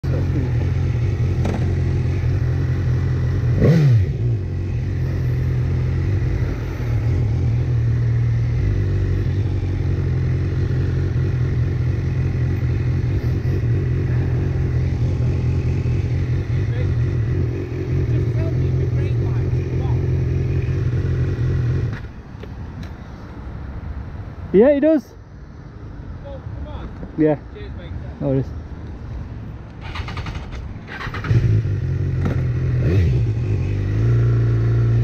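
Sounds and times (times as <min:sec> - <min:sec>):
motorcycle engine running and revving: 0:00.0 - 0:22.2, 0:30.0 - 0:35.0.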